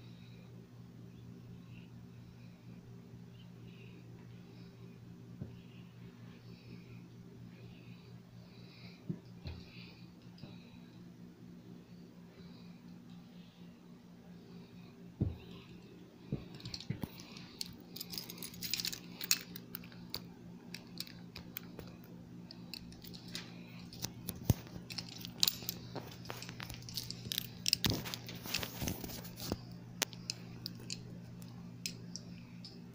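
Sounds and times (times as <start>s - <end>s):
low electrical hum: 0.0s - 32.9s
phone handling rustles and scrapes: 23.0s - 30.9s.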